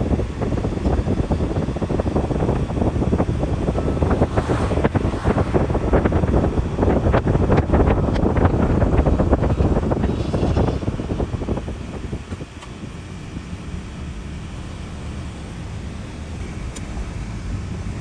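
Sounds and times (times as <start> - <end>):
wind buffeting microphone: 0.0 - 13.4
car road noise: 0.0 - 18.0.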